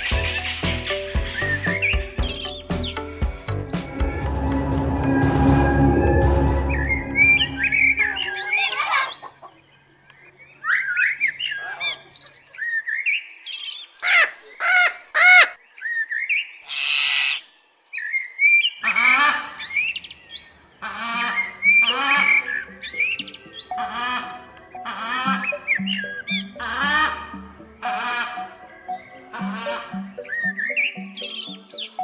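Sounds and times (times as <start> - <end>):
parrots calling: 8.0 - 9.6, 18.8 - 31.6
parrot squawks: 20.8 - 28.6.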